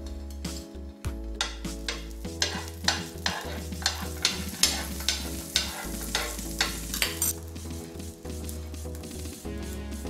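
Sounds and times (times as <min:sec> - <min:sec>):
spoon scraping a pan: 0:01.4 - 0:07.5
butter sizzling in a pan: 0:01.4 - 0:10.0.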